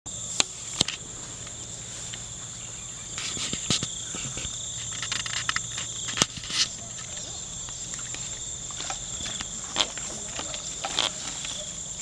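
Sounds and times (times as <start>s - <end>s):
crickets trilling: 0.1s - 12.0s
footsteps through grass: 0.3s - 5.0s.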